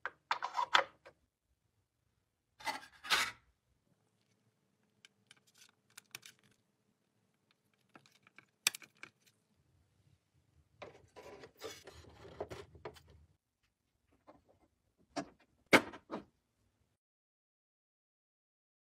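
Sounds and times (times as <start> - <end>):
plastic scraping and rubbing: 10.8 - 13.2.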